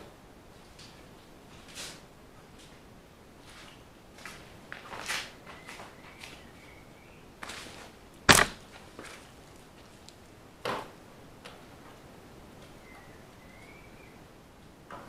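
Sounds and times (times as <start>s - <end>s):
sharp loud knock: 8.3s - 8.6s.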